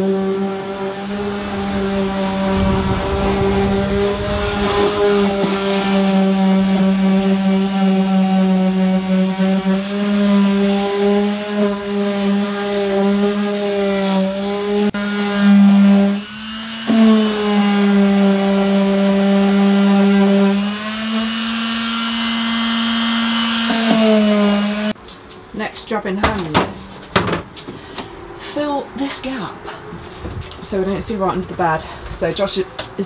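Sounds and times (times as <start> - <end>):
orbital sander on wood: 0.0 - 25.0.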